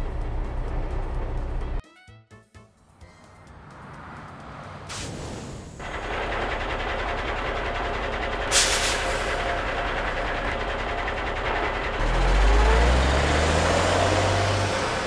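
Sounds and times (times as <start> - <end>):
truck engine running and revving: 0.0 - 1.8, 2.8 - 15.0
air brake hiss: 8.5 - 9.4.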